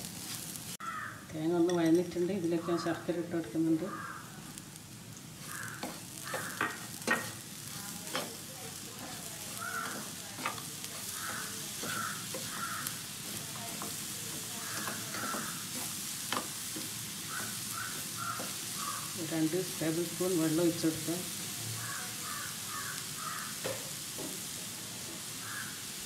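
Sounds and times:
food sizzling in pan: 0.0 - 26.0
spatula stirring in pan: 1.7 - 26.0
spatula tapping frying pan: 5.4 - 19.2, 21.8 - 25.7.

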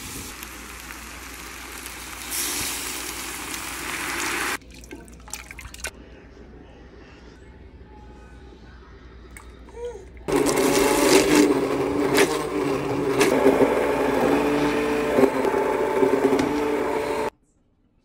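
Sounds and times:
immersion blender running: 10.3 - 17.3.

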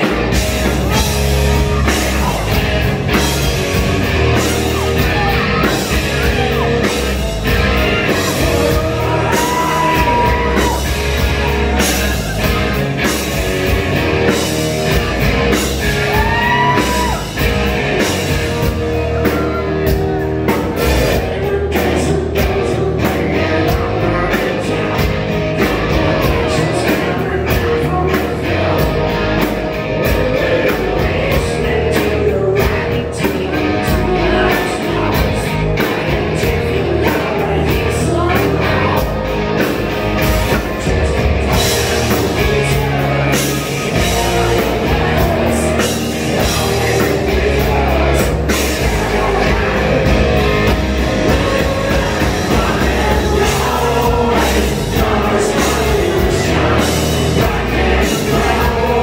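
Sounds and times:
hard rock band playing: 0.0 - 59.0
person singing: 4.3 - 13.4, 40.5 - 59.0.

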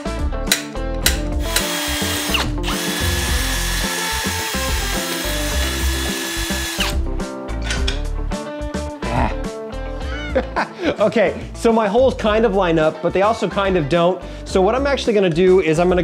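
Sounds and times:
power drill whining: 1.4 - 7.0.

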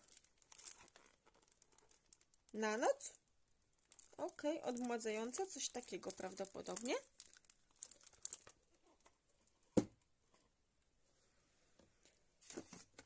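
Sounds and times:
packaging rustling and clicking: 0.0 - 2.5, 3.8 - 9.2.

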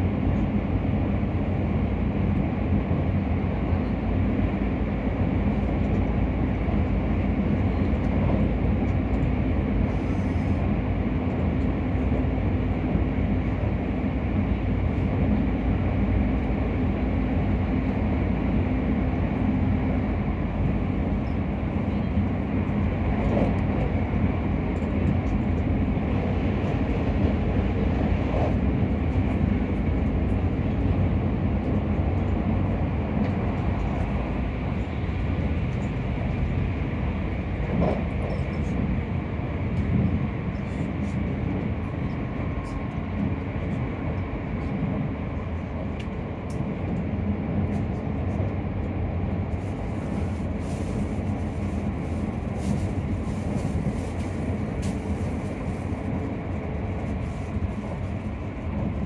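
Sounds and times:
train wheels rumbling on track: 0.0 - 59.0.

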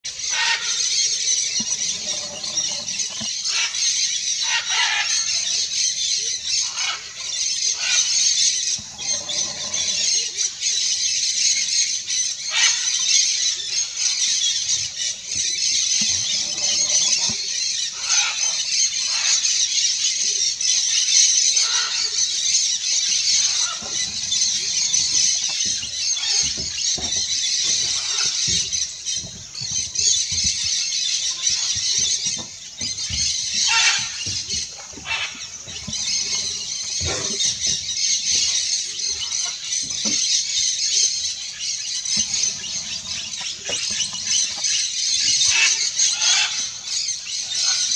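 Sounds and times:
parakeets screeching: 0.1 - 47.9.

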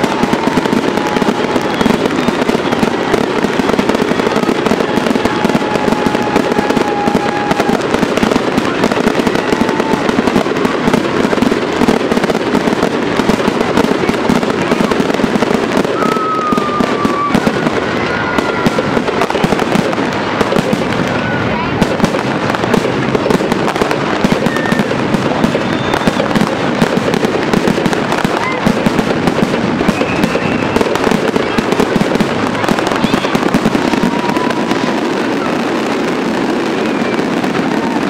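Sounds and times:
fireworks bursting: 0.0 - 38.0
faint whistling tones: 25.4 - 26.3, 30.0 - 30.9.

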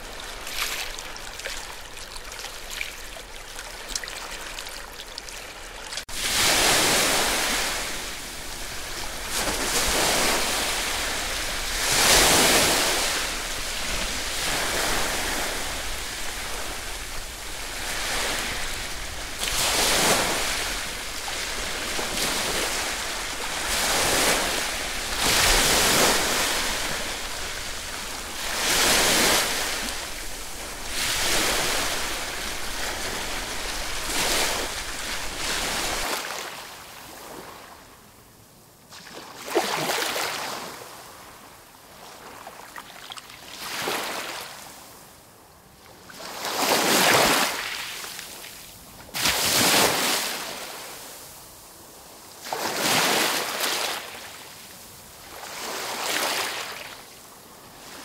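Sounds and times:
waves breaking on shore: 0.0 - 37.9, 38.9 - 45.0, 45.9 - 58.0.

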